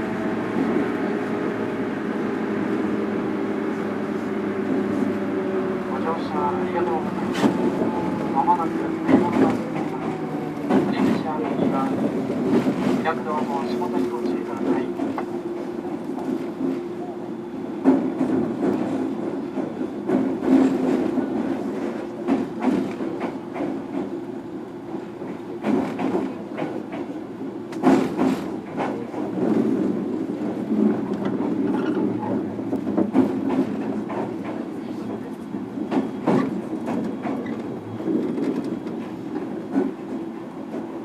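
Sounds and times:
train motors and wheels droning: 0:00.0 - 0:41.0
wheels clacking over rail joints: 0:25.2 - 0:34.8.

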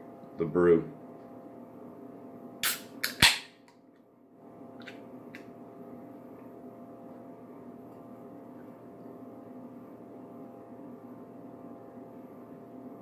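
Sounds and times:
steady low hum: 0:00.0 - 0:13.0
can opening pop and hiss: 0:02.6 - 0:03.6.

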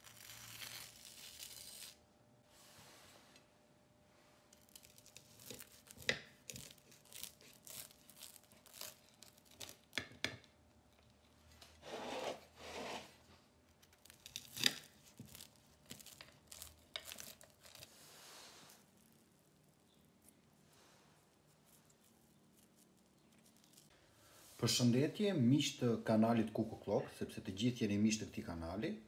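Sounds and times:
knife crunching through crust: 0:00.0 - 0:02.0, 0:04.6 - 0:10.0, 0:13.8 - 0:17.9.

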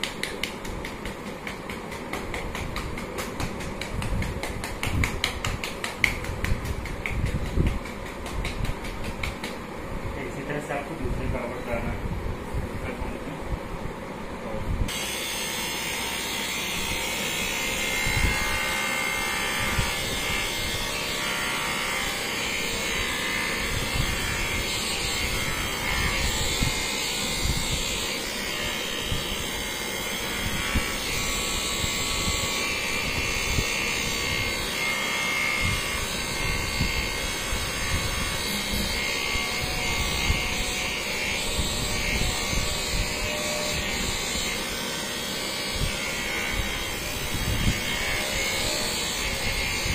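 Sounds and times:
electric massager buzzing: 0:00.0 - 0:13.2, 0:14.9 - 0:49.9
low thumps on body: 0:01.6 - 0:09.5.

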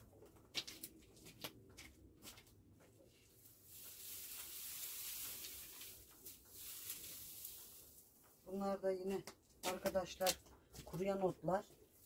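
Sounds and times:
dried grass rustling and crackling: 0:03.0 - 0:11.0.

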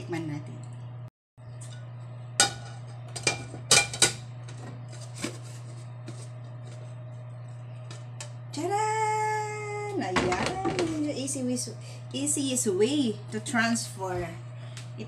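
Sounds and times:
steady low hum: 0:00.0 - 0:15.0
pan and plate clanking: 0:02.4 - 0:04.3.

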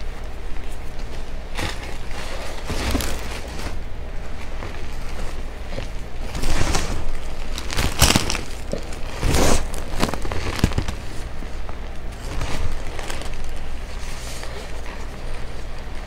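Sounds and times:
chalk crumbling in hands: 0:04.2 - 0:16.0.

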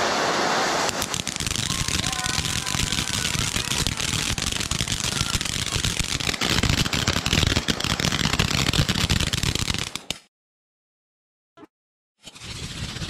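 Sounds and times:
firework fountains hissing: 0:00.0 - 0:10.1
crackle of pops and small bangs: 0:00.9 - 0:10.3.

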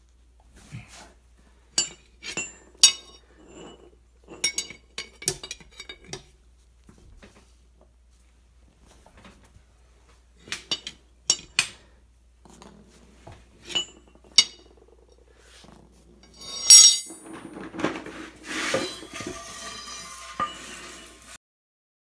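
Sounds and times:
metal bars clinking on concrete: 0:01.8 - 0:06.3, 0:10.4 - 0:11.8, 0:13.6 - 0:14.8, 0:16.2 - 0:21.4
metal clatter: 0:01.8 - 0:06.3, 0:16.2 - 0:21.4
scraping and knocking: 0:16.1 - 0:21.4.

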